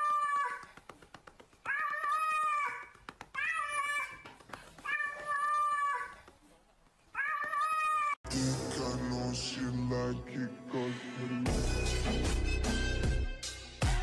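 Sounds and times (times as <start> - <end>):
patting on fur: 0.4 - 7.6
cat meowing: 1.7 - 4.2, 7.2 - 8.2.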